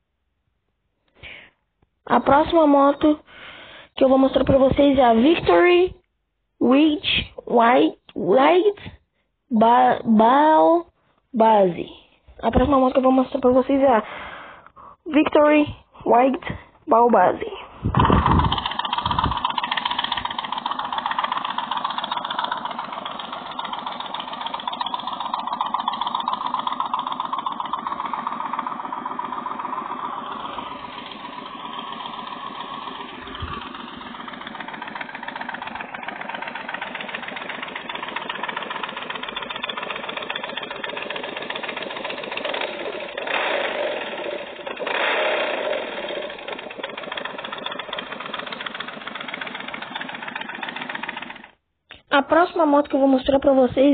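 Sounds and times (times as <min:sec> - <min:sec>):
motorcycle engine idling and revving: 0:17.9 - 0:51.6.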